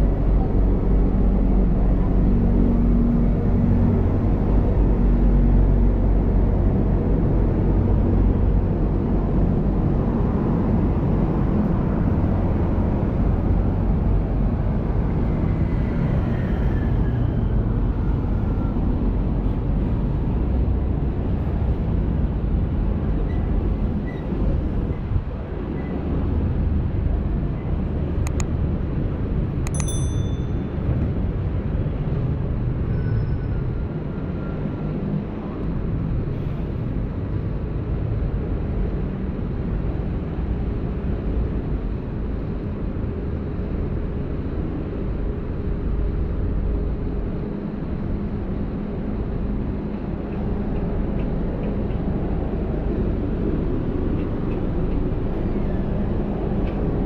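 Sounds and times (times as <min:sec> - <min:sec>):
road traffic rumble: 0:00.0 - 0:57.0
sharp metallic clinks: 0:29.7 - 0:30.8.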